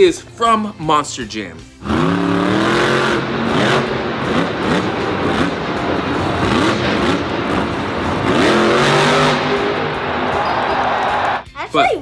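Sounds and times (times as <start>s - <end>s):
monster truck engine revving: 1.8s - 11.4s.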